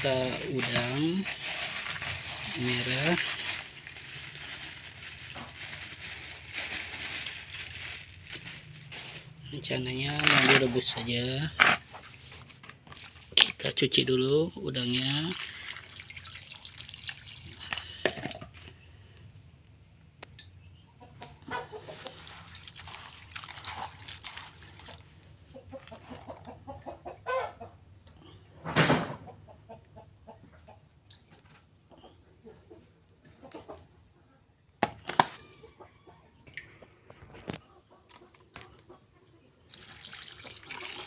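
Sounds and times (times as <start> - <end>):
chickens clucking: 20.9 - 22.5, 25.5 - 31.0, 31.9 - 34.2, 35.6 - 39.6.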